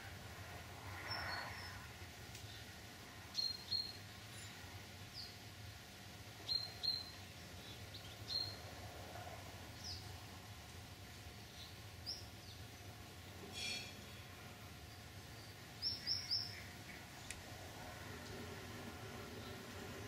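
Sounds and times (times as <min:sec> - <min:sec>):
steady low hum: 0:00.0 - 0:20.0
bird chirping: 0:03.3 - 0:05.4, 0:06.4 - 0:08.6, 0:14.9 - 0:17.3.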